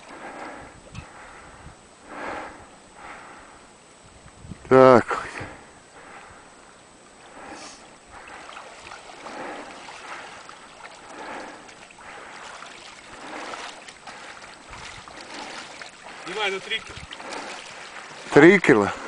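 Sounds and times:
water sloshing around wading legs: 0.0 - 0.6, 7.1 - 19.0
river rushing: 8.4 - 19.0.

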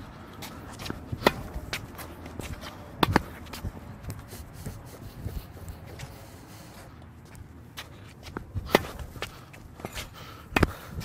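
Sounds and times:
tennis shoes scuffing: 0.0 - 11.0
tennis ball hitting rackets: 0.3 - 4.3, 7.7 - 11.0
ball bouncing on hard court: 0.7 - 3.8, 8.6 - 9.3.

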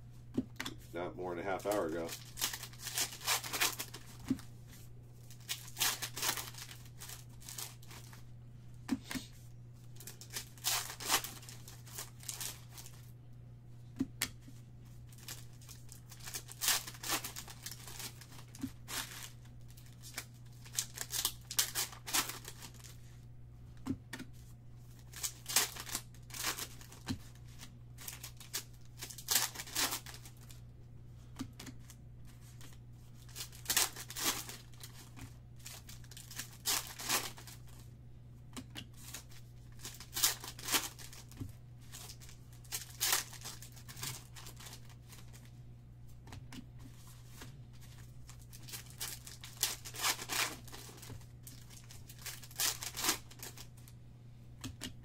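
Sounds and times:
steady low hum: 0.0 - 55.0
foil wrappers tearing and crinkling: 1.3 - 4.4, 5.2 - 8.2, 9.9 - 13.0, 15.1 - 23.0, 24.9 - 30.5, 32.5 - 37.8, 39.0 - 45.5, 47.8 - 53.8.

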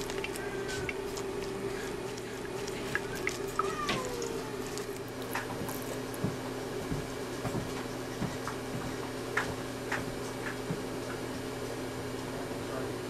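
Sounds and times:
wet handling noises: 0.0 - 6.5
steady low hum: 0.0 - 13.0.

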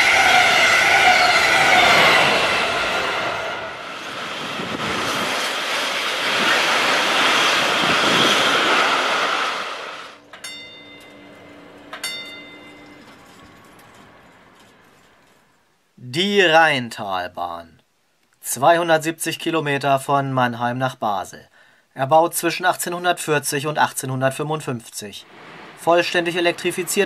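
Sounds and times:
trains passing at speed: 0.0 - 15.7, 25.1 - 27.0
short metallic dings: 10.2 - 15.4.

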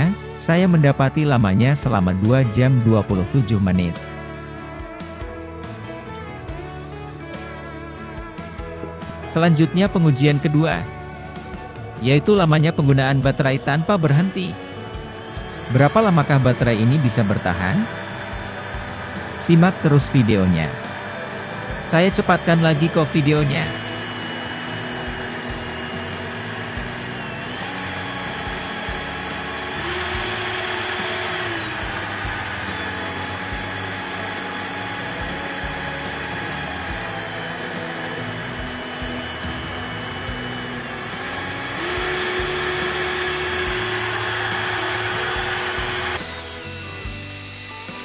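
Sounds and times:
cordless drill motor whining: 7.3 - 48.0.

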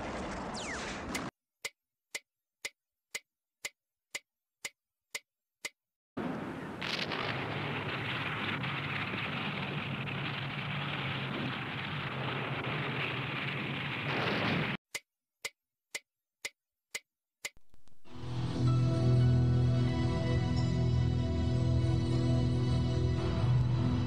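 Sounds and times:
sharp clock-like ticks: 1.1 - 5.8, 14.9 - 18.1
dense crackling noise: 6.2 - 14.8
low hum: 17.6 - 24.0
music: 18.1 - 24.0.

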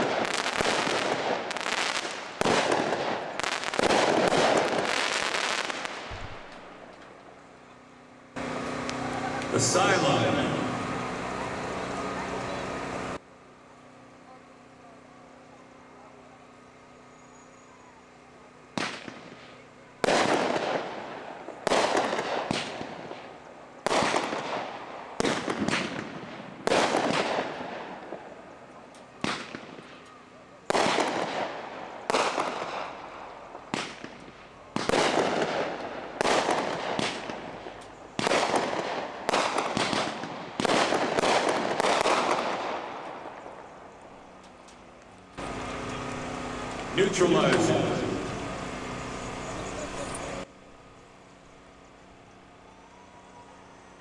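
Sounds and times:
firework bangs: 0.0 - 7.2, 18.7 - 28.4, 29.1 - 30.1, 30.7 - 43.7.

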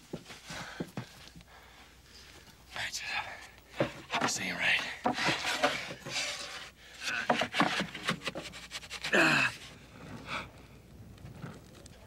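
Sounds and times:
wooden signboard knocking and scraping: 3.7 - 9.1.

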